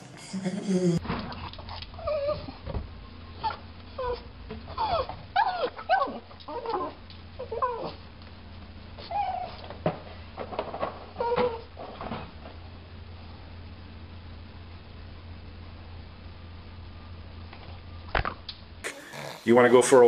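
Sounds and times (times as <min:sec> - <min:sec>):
dog whining: 0:01.3 - 0:02.7, 0:03.3 - 0:08.1, 0:09.0 - 0:09.8, 0:11.0 - 0:12.0.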